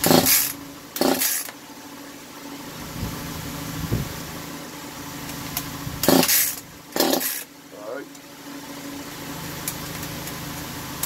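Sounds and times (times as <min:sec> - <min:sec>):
chainsaw engine turning over: 0:00.0 - 0:01.6, 0:05.2 - 0:07.5.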